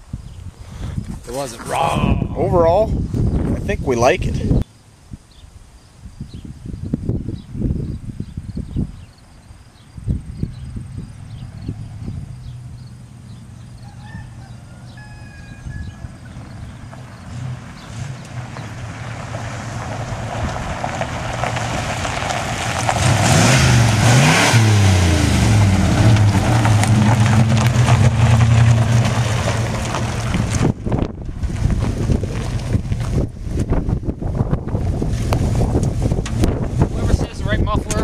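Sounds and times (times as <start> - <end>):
wind buffeting microphone: 0.0 - 13.0, 15.0 - 38.0
pickup truck engine approaching: 10.2 - 38.0.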